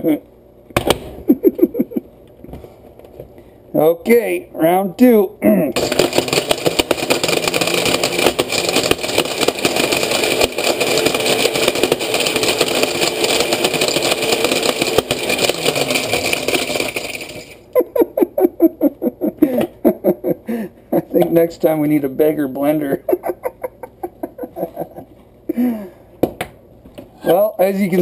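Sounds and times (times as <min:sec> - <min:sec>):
blender motor running: 0:05.8 - 0:17.7.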